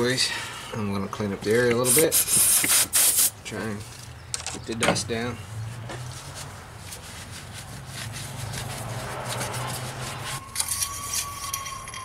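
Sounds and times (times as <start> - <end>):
towel rubbing and wiping: 6.0 - 10.4.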